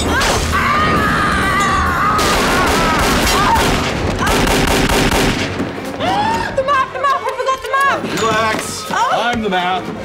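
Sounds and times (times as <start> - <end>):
rapid revolver gunshots: 2.3 - 5.6.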